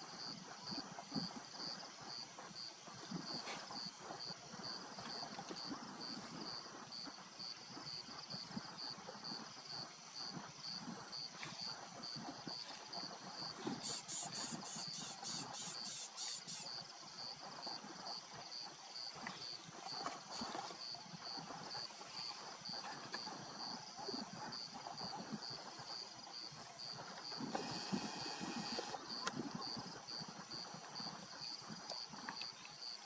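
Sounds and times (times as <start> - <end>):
higher pulsing insect call: 0.0 - 33.0
insects chirping: 0.0 - 33.0
steady high hum: 27.4 - 29.2.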